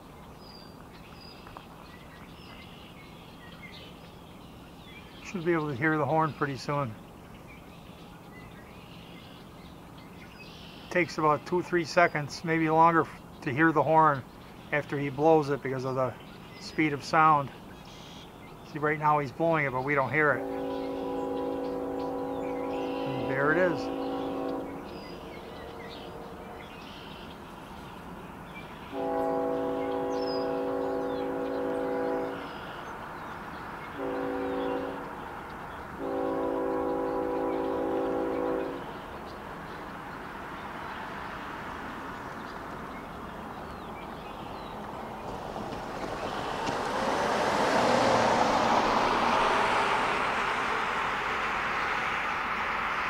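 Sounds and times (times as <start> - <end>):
train engines and wheels: 4.6 - 53.0
locomotive air horn blasts: 20.2 - 26.8, 28.9 - 32.6, 34.0 - 35.2, 36.0 - 39.0.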